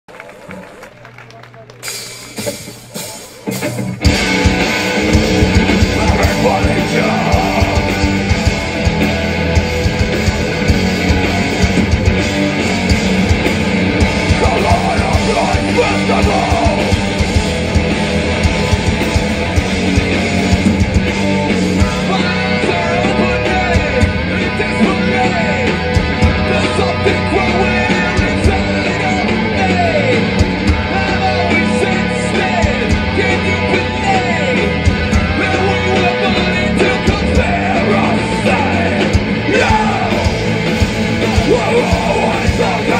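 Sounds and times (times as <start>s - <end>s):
rock band playing live: 0.4s - 42.9s
person singing: 5.5s - 8.4s, 14.2s - 17.0s, 21.3s - 40.4s, 41.1s - 42.9s.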